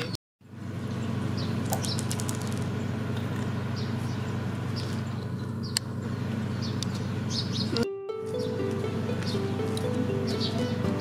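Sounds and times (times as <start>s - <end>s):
steady low hum: 0.4s - 11.0s
crunchy chewing: 1.6s - 3.5s.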